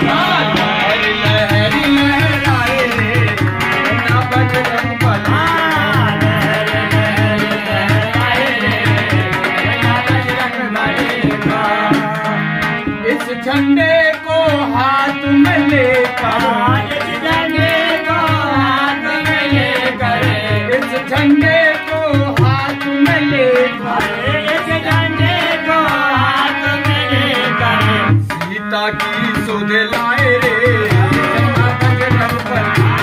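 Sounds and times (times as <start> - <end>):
hand drum beating: 0.0 - 33.0
harmonium: 0.0 - 33.0
person singing: 0.0 - 33.0.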